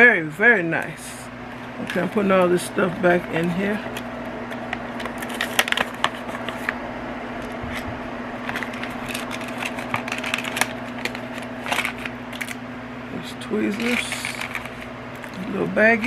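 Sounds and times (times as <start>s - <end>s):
steady low hum: 0.0s - 16.0s
packaging rustling: 1.8s - 6.8s, 7.4s - 12.6s, 13.6s - 15.7s.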